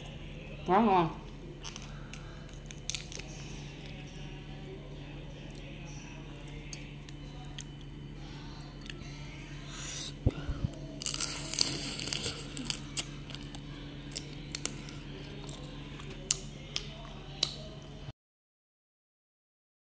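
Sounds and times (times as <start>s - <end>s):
steady low hum: 0.0s - 18.1s
wet chewing clicks and crackles: 1.6s - 4.1s, 6.3s - 7.9s, 11.0s - 17.8s.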